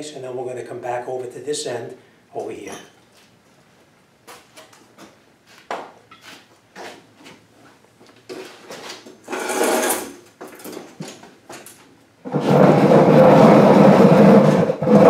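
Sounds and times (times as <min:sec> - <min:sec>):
loud steady noise: 0:12.2 - 0:15.0.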